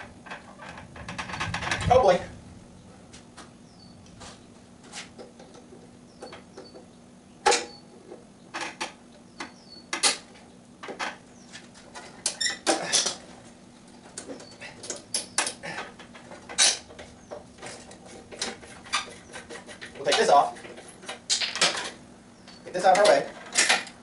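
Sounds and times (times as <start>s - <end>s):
tools clicking and clanking on metal: 11.8s - 13.3s, 13.9s - 24.0s.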